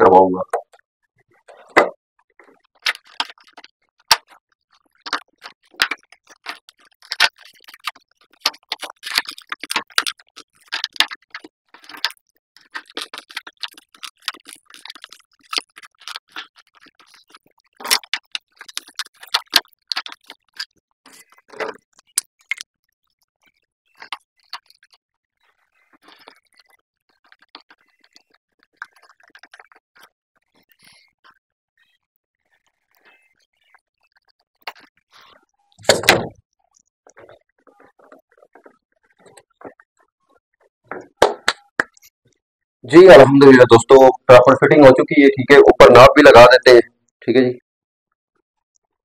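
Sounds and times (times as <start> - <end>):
hands clicking and scraping: 1.5 - 22.7, 23.9 - 25.0, 25.9 - 31.4, 37.0 - 39.9, 40.6 - 42.1.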